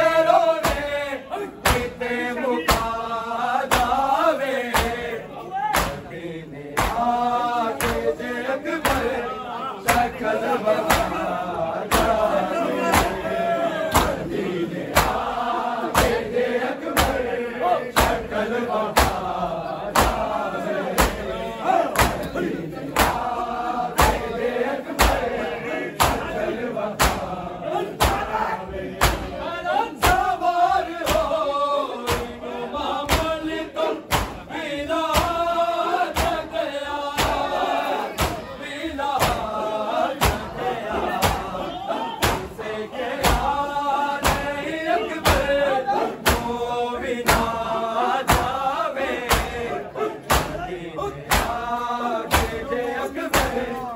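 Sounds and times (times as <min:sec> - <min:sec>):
crowd of men chanting in unison: 0:00.0 - 0:53.9
chest-beating slaps: 0:00.6 - 0:01.0, 0:01.6 - 0:08.2, 0:08.8 - 0:09.2, 0:09.8 - 0:17.3, 0:17.9 - 0:19.3, 0:19.9 - 0:28.4, 0:29.0 - 0:29.4, 0:30.0 - 0:30.4, 0:31.0 - 0:31.4, 0:32.0 - 0:35.5, 0:36.1 - 0:38.5, 0:39.2 - 0:39.6, 0:40.2 - 0:41.6, 0:42.2 - 0:42.6, 0:43.2 - 0:43.6, 0:44.2 - 0:45.6, 0:46.2 - 0:46.6, 0:47.2 - 0:47.6, 0:48.2 - 0:48.6, 0:49.2 - 0:50.7, 0:51.3 - 0:52.7, 0:53.3 - 0:53.8.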